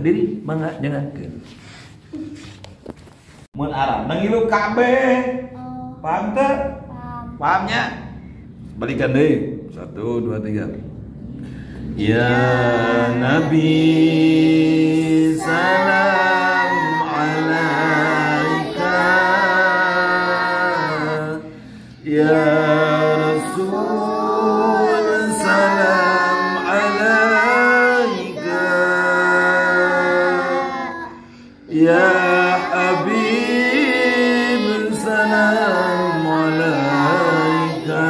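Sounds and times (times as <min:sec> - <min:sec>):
man and boys chanting: 0:11.8 - 0:38.0.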